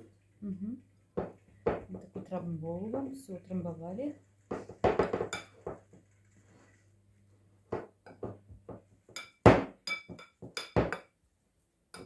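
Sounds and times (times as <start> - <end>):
metal spoon clinking on bowl: 9.1 - 11.0.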